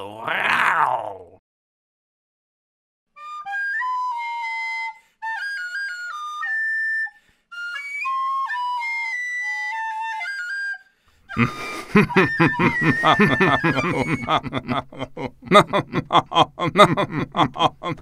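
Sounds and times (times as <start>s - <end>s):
recorder melody: 11.3s - 14.8s
cartoon laughter: 11.4s - 18.0s.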